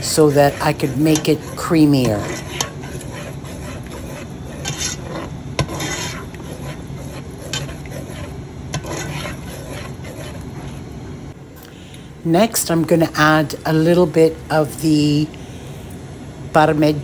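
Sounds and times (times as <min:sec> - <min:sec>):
spoon stirring sauce in pot: 0:00.0 - 0:11.0.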